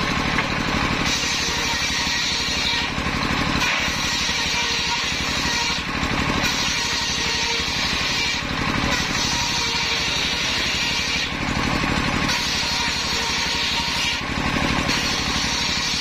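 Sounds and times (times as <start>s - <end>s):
circular saw cutting planks: 0.0s - 16.0s
stationary engine chugging: 0.0s - 16.0s.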